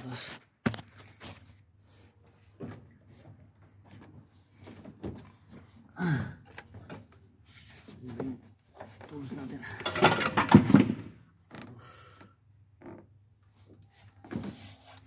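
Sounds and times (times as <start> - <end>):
metal parts clicking and knocking: 9.7 - 10.9.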